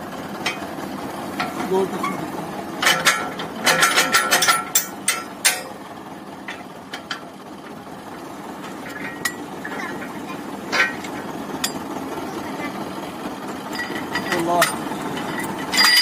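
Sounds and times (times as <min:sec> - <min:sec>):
low steady rumble: 0:00.0 - 0:16.0
tools clanking against steel: 0:00.4 - 0:00.7, 0:01.4 - 0:05.8, 0:06.4 - 0:07.3, 0:08.6 - 0:11.8, 0:13.7 - 0:16.0.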